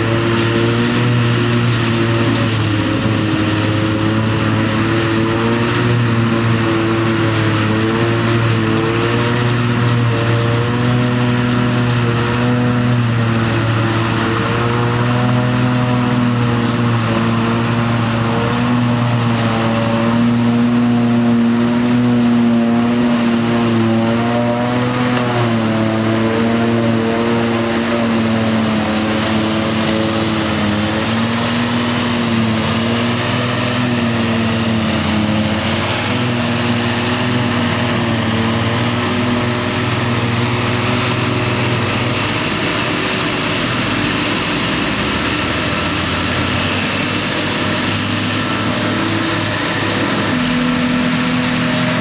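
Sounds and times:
harvester engine droning: 0.0 - 52.0.

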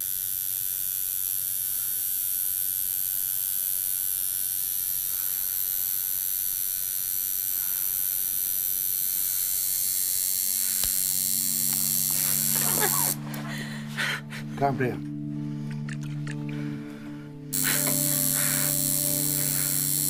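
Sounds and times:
tattoo machine buzzing: 0.0 - 13.3, 17.5 - 20.0.

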